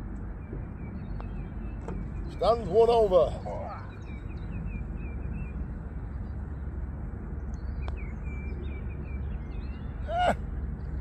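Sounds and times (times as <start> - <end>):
small birds chirping: 0.3 - 11.0
person exclaiming: 10.1 - 10.4.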